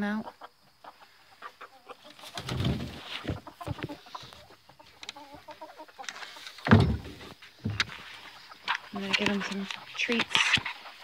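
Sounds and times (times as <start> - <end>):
hens clucking: 0.0 - 11.0
knocks and rustling: 2.2 - 4.4, 6.0 - 10.8.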